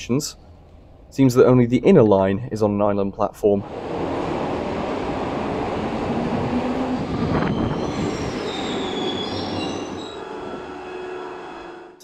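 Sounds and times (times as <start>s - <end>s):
subway train rumbling: 0.0s - 2.7s, 3.5s - 12.0s
metallic wheel squealing: 6.5s - 12.0s.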